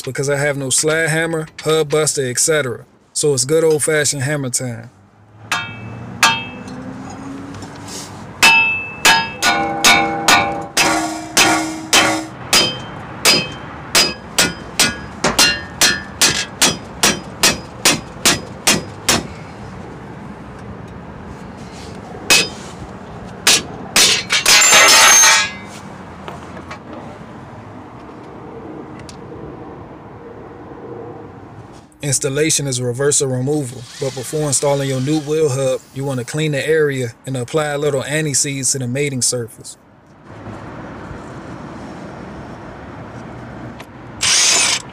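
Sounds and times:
hammer clanging on metal: 0:05.5 - 0:06.9, 0:08.4 - 0:19.3, 0:22.3 - 0:22.6, 0:23.4 - 0:25.7.

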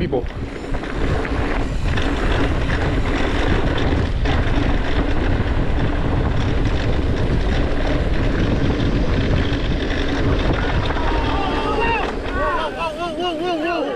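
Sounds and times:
wind on microphone: 0:00.0 - 0:13.3
bike tyres on dirt trail: 0:00.0 - 0:13.9.

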